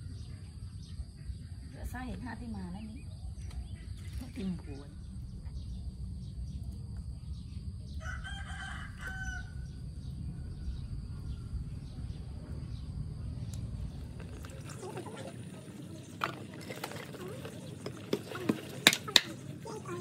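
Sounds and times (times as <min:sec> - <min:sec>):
steady low rumble: 0:00.0 - 0:16.7
rooster crowing: 0:07.9 - 0:11.8.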